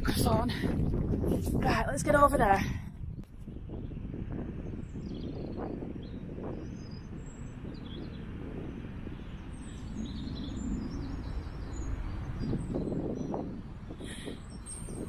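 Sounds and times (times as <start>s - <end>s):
wind rumbling on microphone: 0.0s - 15.0s
small birds chirping: 3.5s - 15.0s.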